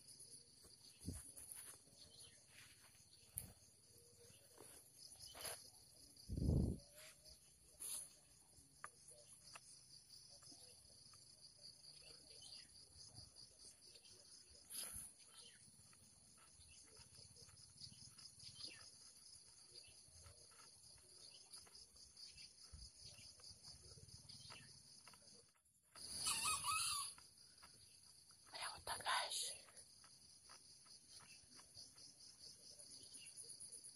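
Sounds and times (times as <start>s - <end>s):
high-pitched insect chorus: 0.0s - 33.9s
rooster crowing: 26.2s - 27.2s.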